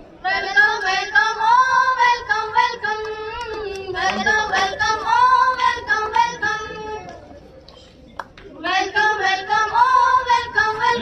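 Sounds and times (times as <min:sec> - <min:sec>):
young person singing unaccompanied: 0:00.2 - 0:07.1, 0:08.6 - 0:11.0.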